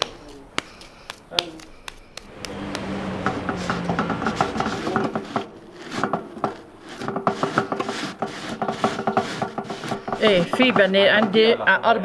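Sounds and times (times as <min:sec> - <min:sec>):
hands patting wet clay: 0:00.0 - 0:02.9.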